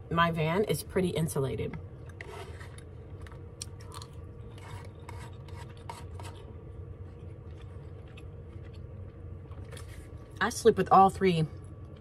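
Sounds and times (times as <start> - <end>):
steady low hum: 0.0 - 12.0
plastic spoon scraping paper bowl: 2.2 - 2.8, 4.5 - 6.4.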